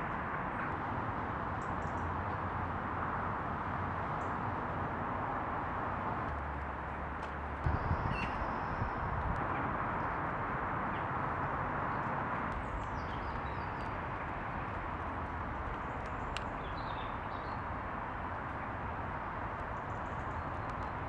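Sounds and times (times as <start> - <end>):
faint bird chirps: 7.7 - 9.0.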